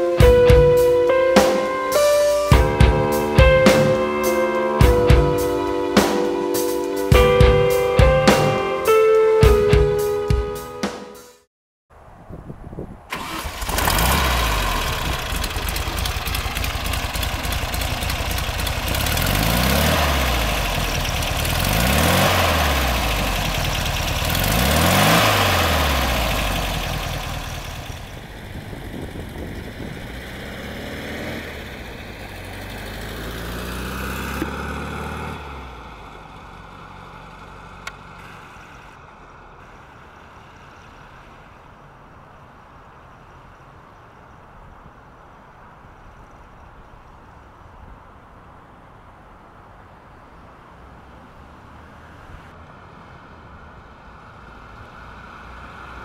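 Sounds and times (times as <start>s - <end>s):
car engine revving: 0.0s - 10.1s, 13.1s - 39.0s.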